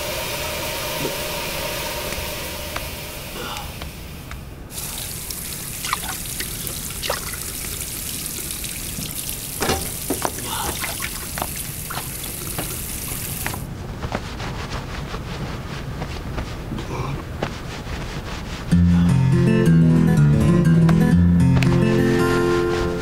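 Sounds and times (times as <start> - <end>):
water splashing on face: 4.8 - 13.6
tap running into basin: 5.3 - 13.6.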